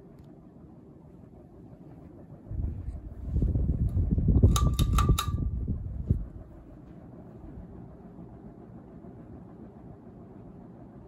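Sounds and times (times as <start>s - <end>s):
ceiling fan humming: 0.0s - 11.0s
loud low rumble: 1.3s - 10.2s
sharp ringing clicks: 4.4s - 5.5s.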